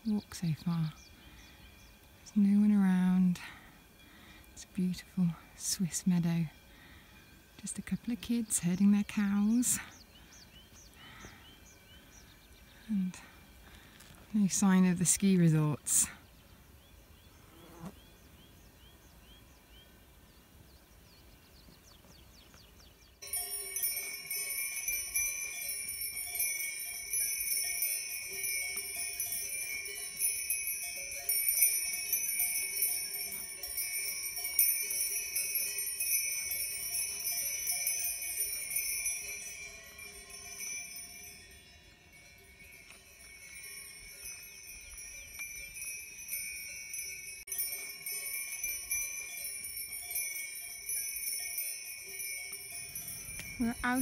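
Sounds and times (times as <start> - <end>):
cowbells clanking: 23.2 - 54.0.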